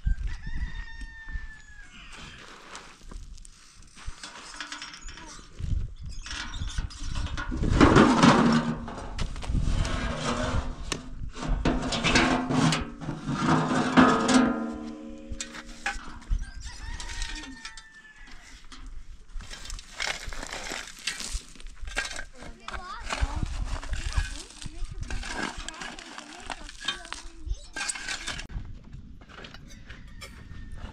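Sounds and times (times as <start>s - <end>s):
rooster crowing: 0.0s - 2.1s, 16.3s - 18.6s, 29.6s - 30.9s
rocks clattering and scraping: 2.1s - 28.6s.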